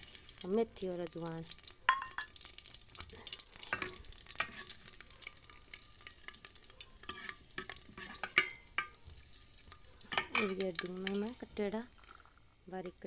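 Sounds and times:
spices sizzling in hot oil: 0.0s - 13.0s
spoon scraping pot: 3.6s - 13.0s.

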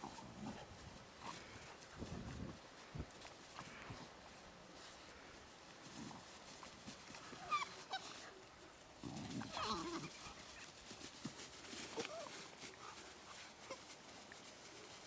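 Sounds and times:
puppies yipping and yelping: 7.2s - 8.3s.

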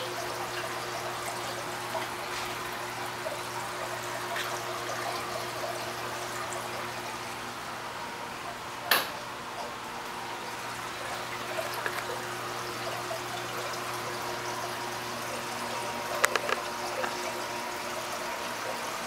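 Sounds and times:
water trickling and splashing: 0.0s - 19.0s.

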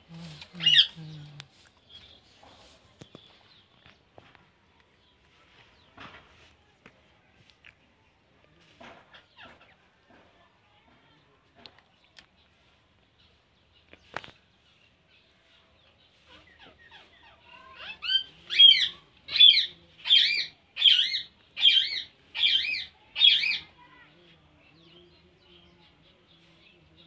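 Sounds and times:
parakeet calling: 0.6s - 1.0s, 16.5s - 23.7s
parakeet chattering: 0.6s - 1.0s, 16.7s - 23.7s.

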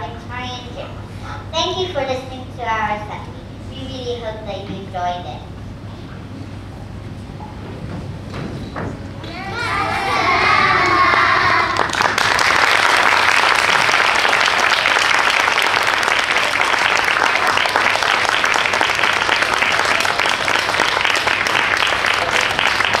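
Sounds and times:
children's voices: 9.2s - 11.9s
audience clapping: 10.0s - 23.0s.

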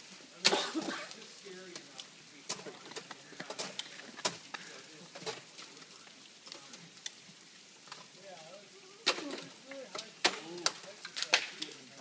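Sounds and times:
ice axe striking ice: 2.5s - 4.5s, 9.0s - 11.8s.

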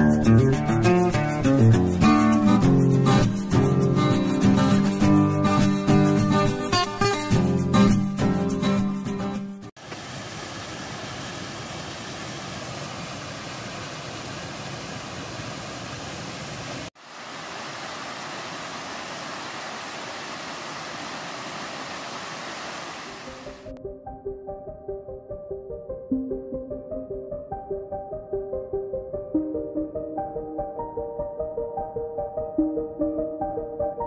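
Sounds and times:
guitar music: 0.0s - 9.7s
stream rushing over rocks: 9.8s - 23.7s.

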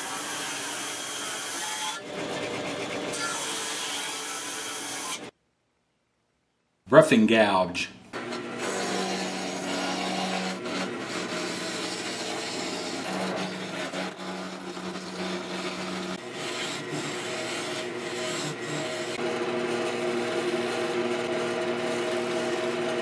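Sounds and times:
gouge scraping wood on lathe: 8.2s - 23.0s
lathe hum: 8.2s - 23.0s.

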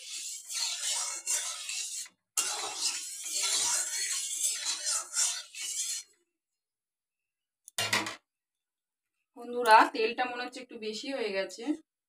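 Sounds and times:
metal spatula scraping a pan: 0.0s - 6.2s.

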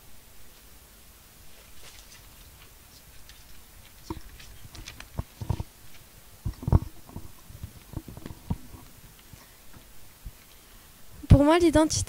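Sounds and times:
low thumps and knocks: 3.3s - 10.4s.

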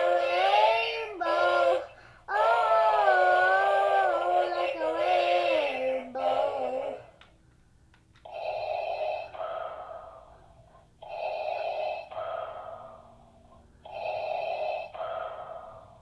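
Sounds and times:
mechanical respirator breathing: 8.3s - 16.0s.

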